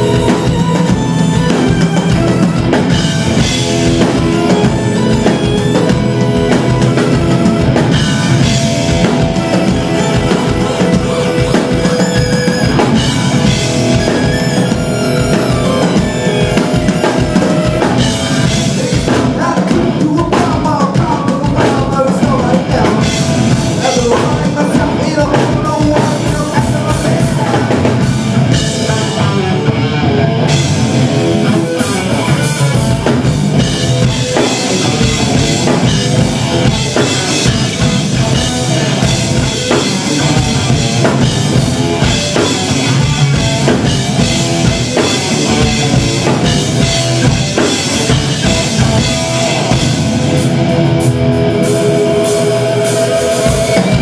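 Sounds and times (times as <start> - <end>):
drum kit and cymbals: 0.0 - 54.0
live rock band playing: 0.0 - 54.0.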